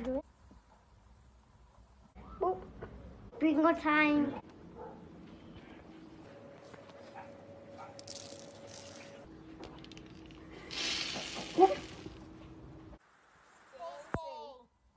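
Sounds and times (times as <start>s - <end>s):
sprinkles rattling from plastic shaker: 8.0s - 9.1s, 9.8s - 12.1s.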